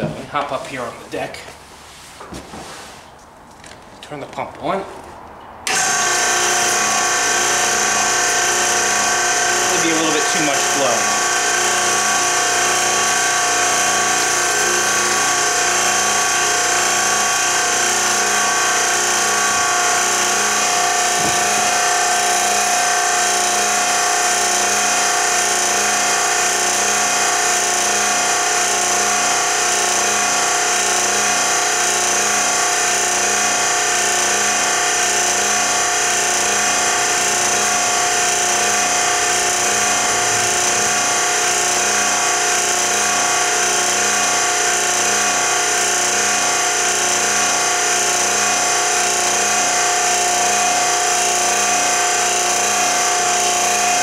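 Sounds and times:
fluid pump whining: 5.6s - 54.0s.

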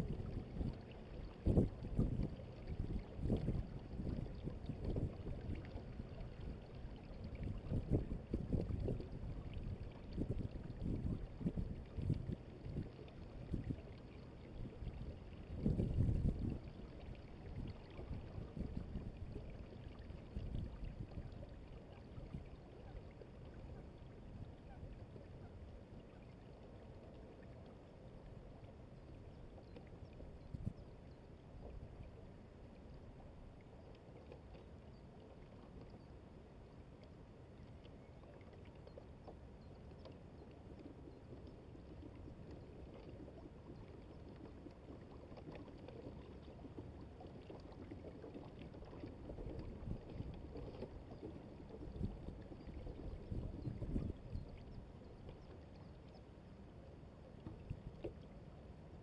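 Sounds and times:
wind buffeting microphone: 1.4s - 5.6s, 7.4s - 12.9s, 15.5s - 16.7s, 51.8s - 54.5s.

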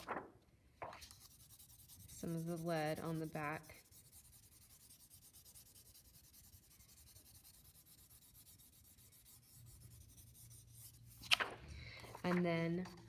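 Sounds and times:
pencil scribbling on paper: 1.1s - 11.2s.

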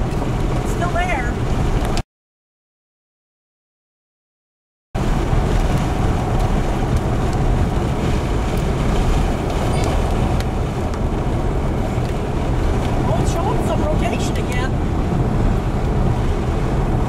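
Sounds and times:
loud wind noise on microphone: 5.0s - 17.0s.

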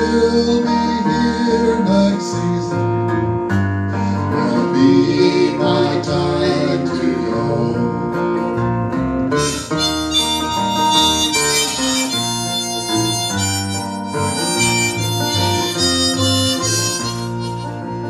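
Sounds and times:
electric bass: 0.0s - 18.0s
strummed acoustic guitar: 0.0s - 18.0s
harmonica melody: 9.3s - 18.0s.

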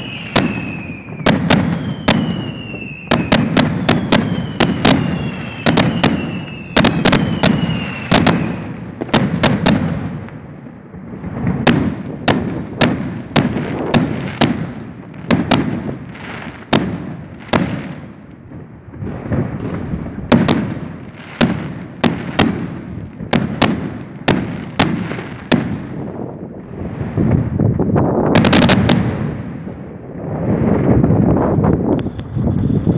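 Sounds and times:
firework whistle gliding downward: 0.0s - 8.8s
fireworks bursting: 0.0s - 32.9s.

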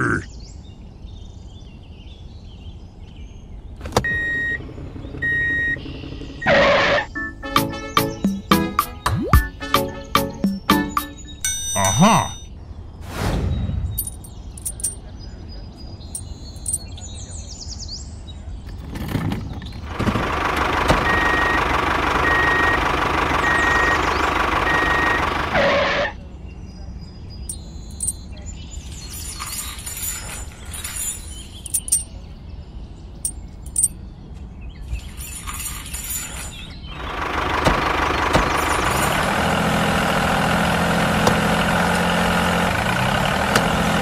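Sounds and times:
short beep: 11.4s - 12.5s
metal clicks and knocks of chain: 14.0s - 15.0s, 16.2s - 17.0s, 27.5s - 28.3s, 28.9s - 32.2s, 33.2s - 34.0s.

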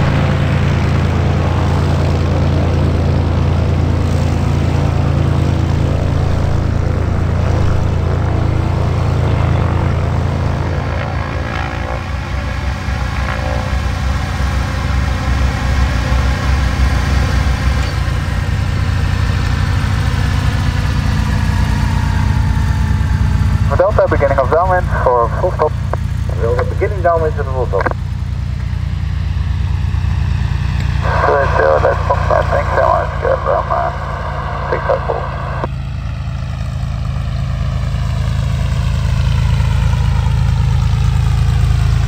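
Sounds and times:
propeller plane engine drone: 0.0s - 42.0s.

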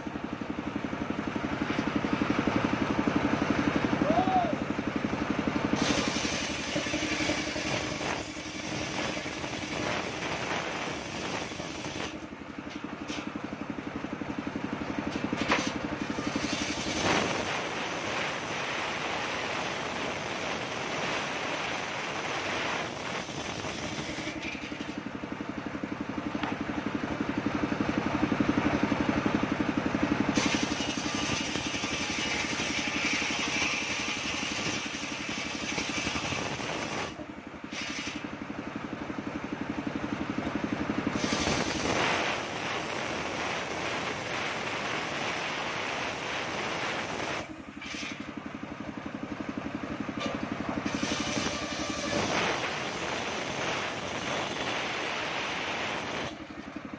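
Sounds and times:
circular saw engine drone: 0.0s - 56.9s
saw blade cutting wood: 5.8s - 13.4s, 15.1s - 25.1s, 30.3s - 38.3s, 41.1s - 42.9s, 43.6s - 48.4s, 50.2s - 56.8s.

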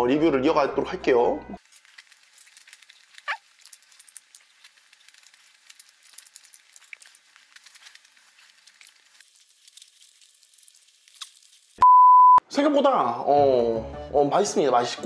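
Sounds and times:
chewing with mouth clicks: 1.6s - 11.8s.

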